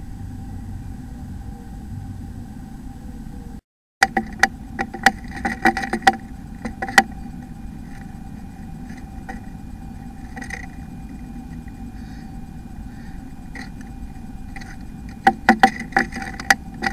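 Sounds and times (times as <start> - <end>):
steady low hum: 0.0 - 16.9
bird tapping inside nest box: 4.0 - 8.2, 8.8 - 11.8, 13.5 - 16.9.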